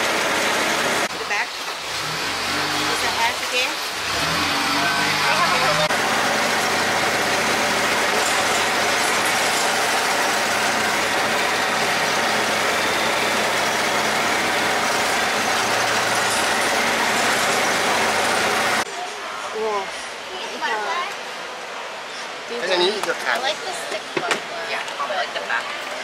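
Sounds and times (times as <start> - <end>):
boat engine droning: 1.8 - 18.9.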